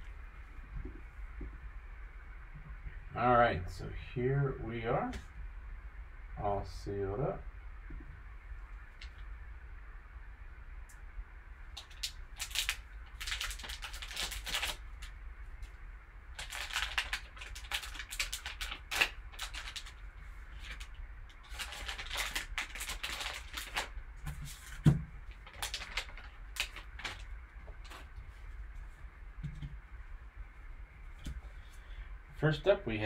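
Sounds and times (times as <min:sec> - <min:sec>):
foil wrapper crinkling and tearing: 0:11.8 - 0:15.2, 0:16.3 - 0:28.1.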